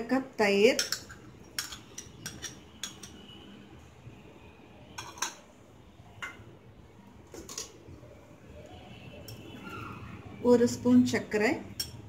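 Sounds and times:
metal spoon clinking on bowls: 0.6 - 3.4, 4.9 - 5.5, 6.2 - 6.5, 7.4 - 7.8, 9.2 - 9.5, 11.7 - 12.0.

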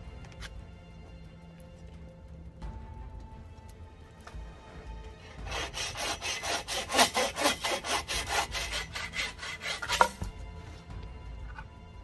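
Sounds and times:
hand saw cutting wood: 5.2 - 10.3.

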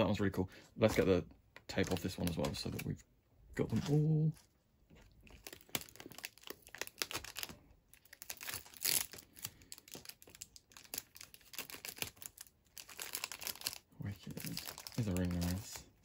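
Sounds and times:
plastic wrapping crinkling: 0.8 - 3.0, 3.6 - 16.0
tape peeling: 5.3 - 13.8.

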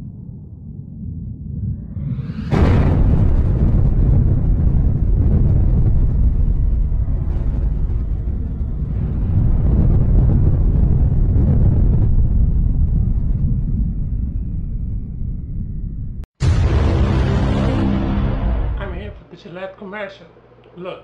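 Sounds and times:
explosion low rumble: 0.0 - 19.2.

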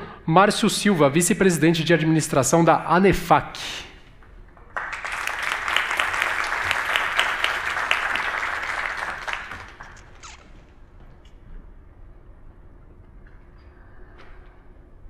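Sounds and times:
audience applauding: 4.6 - 10.3.

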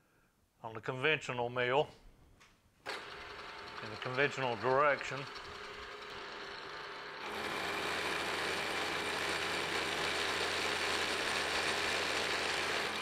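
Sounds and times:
milling machine cutting steel: 2.9 - 13.0.

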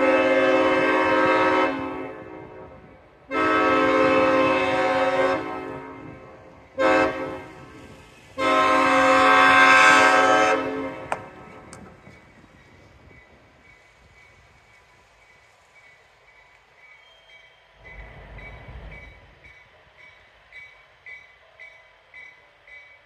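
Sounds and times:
locomotive air horn blasts: 0.0 - 11.4.

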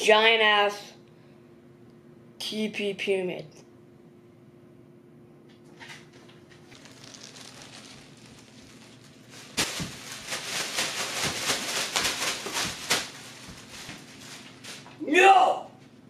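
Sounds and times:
plastic wrap crinkling and tearing: 6.7 - 15.0
rolls thumping onto carpet: 6.7 - 15.0.

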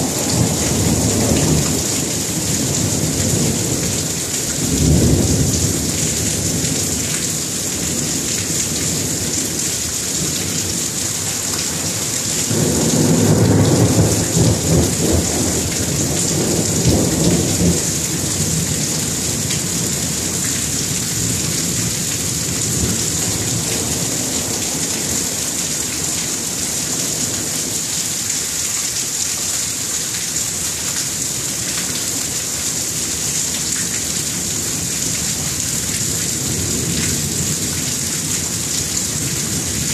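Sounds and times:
heavy rain hissing: 0.0 - 39.9
thunder rumbling: 11.7 - 25.4.

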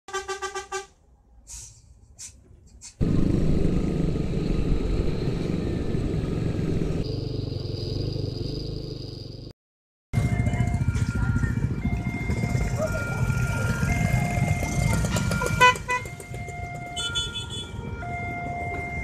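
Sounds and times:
vehicle engine running loudly: 3.0 - 9.5, 10.2 - 16.8.

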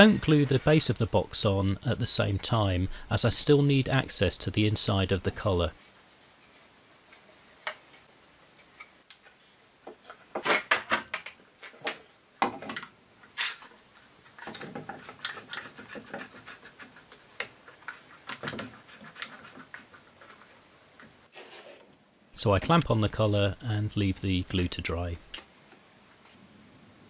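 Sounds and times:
wood rubbing: 13.2 - 21.9.

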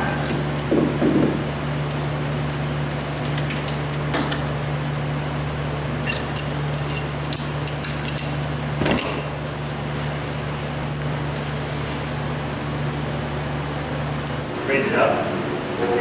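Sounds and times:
steady low hum: 0.0 - 16.0
metal parts clinking: 6.0 - 9.4.

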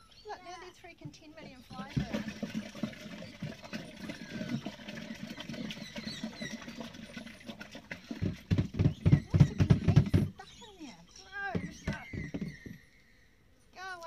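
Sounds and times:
waste glugging and sloshing: 1.2 - 10.5.

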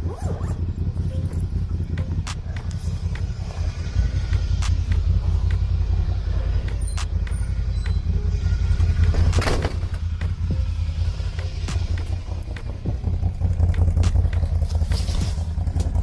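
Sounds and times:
atv engine running: 0.0 - 16.0
clicks: 1.1 - 3.6, 4.2 - 6.0, 6.6 - 8.2.

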